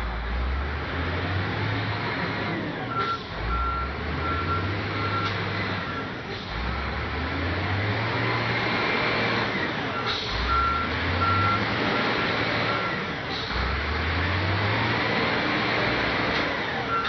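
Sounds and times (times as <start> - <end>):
wheel loader diesel engine: 0.0 - 17.0
reversing alarm beeps: 2.9 - 6.1, 10.0 - 11.7.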